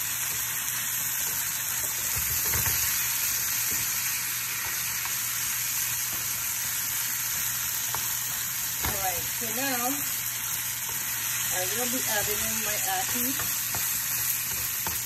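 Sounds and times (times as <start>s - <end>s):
food sizzling in oil: 0.0s - 15.0s
spatula knocking on pan: 11.9s - 15.0s.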